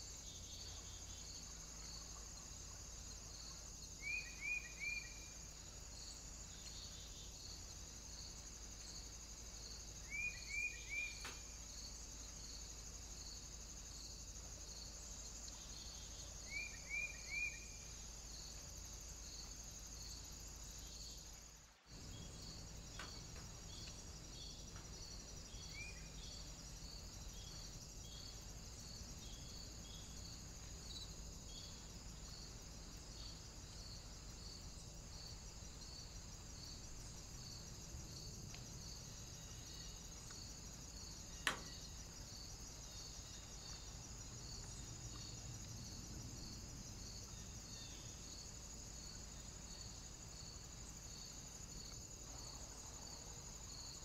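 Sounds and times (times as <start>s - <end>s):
insects trilling: 0.0s - 54.0s
sharp click: 41.4s - 41.8s.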